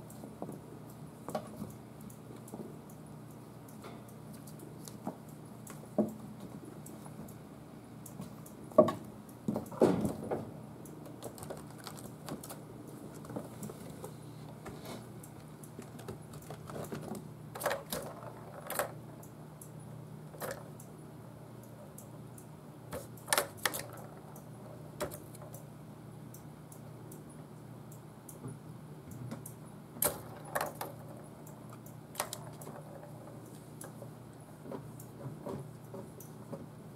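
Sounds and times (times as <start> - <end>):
low steady hum: 0.0 - 36.9
paws tapping plastic toys: 11.1 - 14.2.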